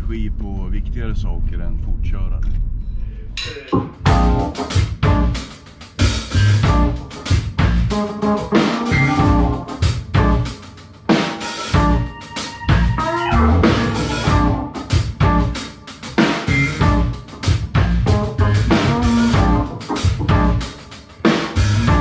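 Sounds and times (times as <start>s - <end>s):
electric bass: 0.0s - 10.6s, 11.7s - 22.0s
drum kit: 0.0s - 22.0s
keyboards: 3.1s - 22.0s
electric guitar: 6.4s - 10.5s, 11.1s - 15.6s.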